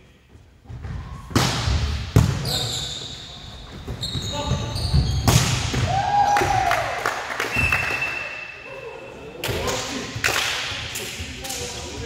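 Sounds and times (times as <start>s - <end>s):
shoe squeaks: 2.4s - 5.3s
volleyballs thumping on floor: 4.9s - 6.0s.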